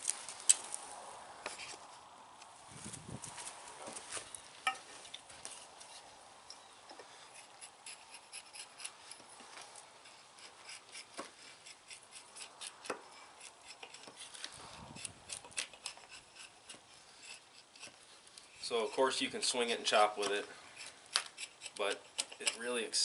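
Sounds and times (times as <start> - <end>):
hatchet scraping wood: 1.4 - 2.0, 6.9 - 23.0.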